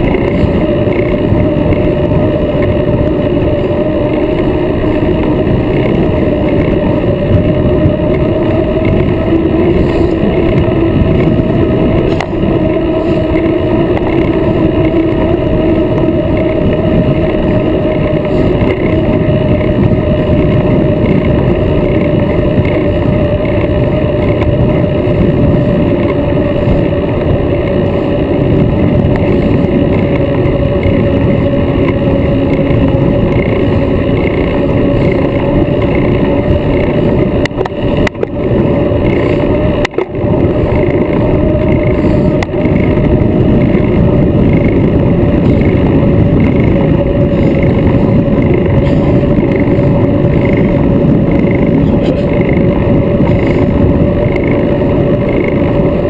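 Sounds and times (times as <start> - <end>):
steady wavering hum: 0.0 - 56.0
wind and road noise: 0.0 - 56.0.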